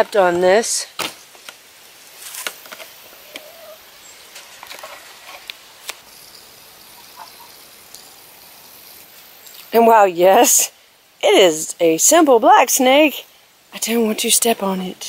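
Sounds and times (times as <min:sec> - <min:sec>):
dry leaves rustling underfoot: 0:00.5 - 0:06.4.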